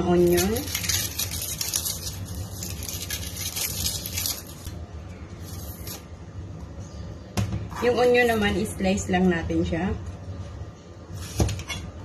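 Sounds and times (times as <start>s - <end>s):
onion skin crackling: 0.0s - 6.1s.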